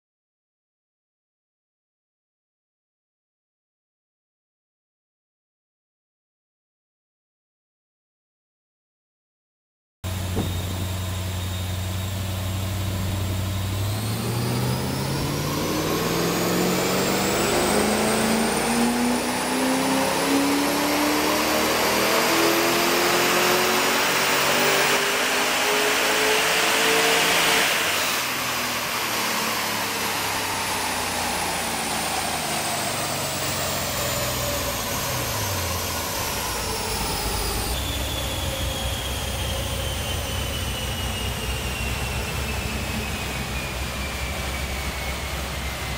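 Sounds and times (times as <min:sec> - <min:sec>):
car engine idling and revving: 0:10.1 - 0:45.9
high whine: 0:10.1 - 0:45.9.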